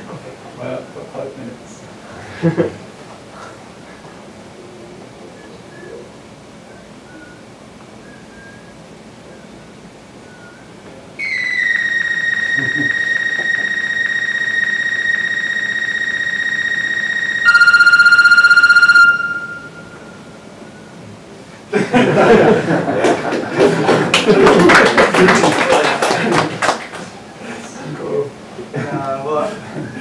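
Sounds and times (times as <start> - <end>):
high electronic note: 11.2 - 20.6
low wobbling electronic note: 11.2 - 20.7.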